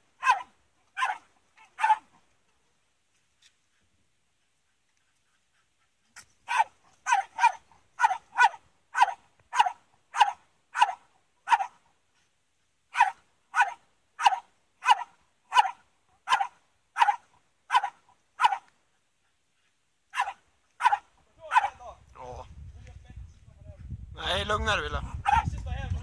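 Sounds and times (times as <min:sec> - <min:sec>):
dog barking: 0:00.2 - 0:02.1, 0:06.5 - 0:11.8, 0:12.9 - 0:18.7, 0:20.1 - 0:21.8, 0:25.1 - 0:25.5.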